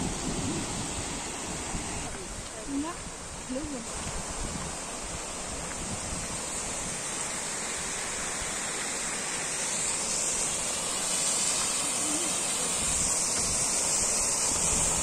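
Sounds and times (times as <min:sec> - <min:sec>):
waterfall pouring into pool: 0:03.8 - 0:15.0.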